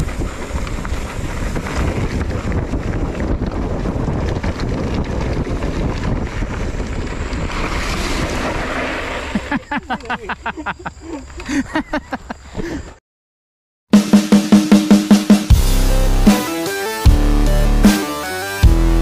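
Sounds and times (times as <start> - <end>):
bike clicks and rattles: 0.0 - 10.4
wind buffeting microphone: 0.0 - 10.8.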